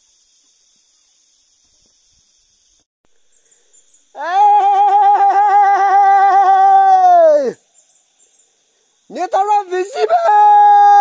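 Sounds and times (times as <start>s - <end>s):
man's long high call: 4.2s - 7.6s, 9.1s - 11.0s.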